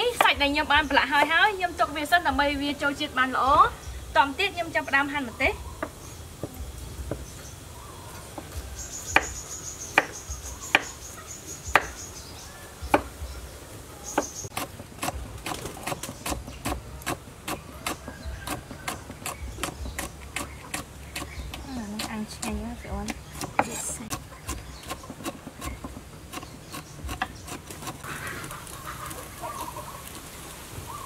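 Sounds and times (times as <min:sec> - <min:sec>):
insect chirring: 0:00.3 - 0:12.2
knife chopping on wooden board: 0:10.0 - 0:10.9, 0:11.7 - 0:12.0, 0:14.2 - 0:28.0.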